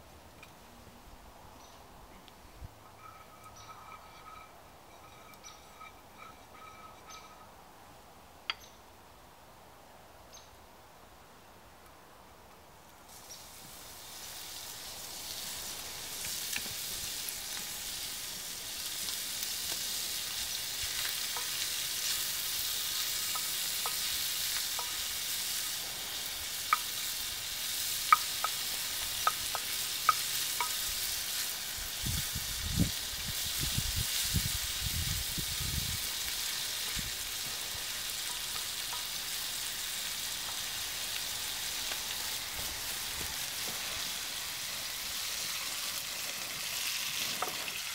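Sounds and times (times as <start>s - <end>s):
bacon sizzling in frying pan: 13.1s - 47.9s.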